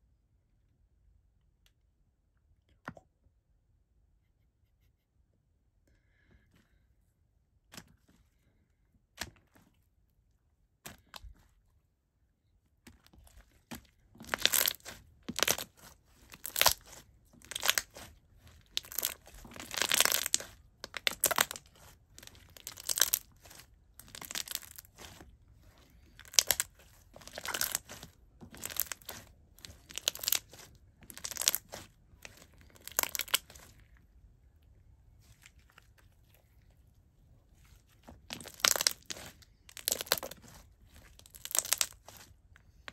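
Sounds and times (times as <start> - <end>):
slime squishing: 7.6 - 11.8, 12.6 - 42.9.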